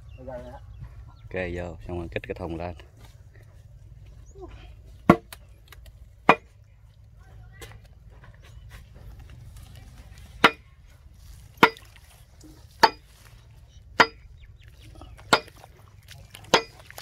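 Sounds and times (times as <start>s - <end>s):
sharp ringing metal clanks: 14.0s - 14.3s.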